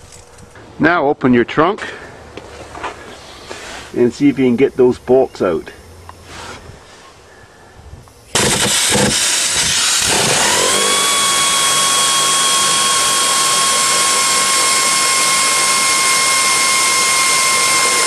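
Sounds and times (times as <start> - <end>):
air ratchet rush and whine: 8.3 - 18.0.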